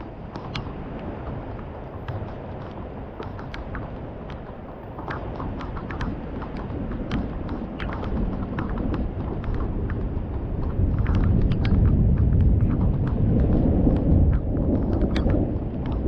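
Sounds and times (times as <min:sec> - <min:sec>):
raindrops ticking: 0:00.0 - 0:16.0
thunder rumbling: 0:00.0 - 0:16.0.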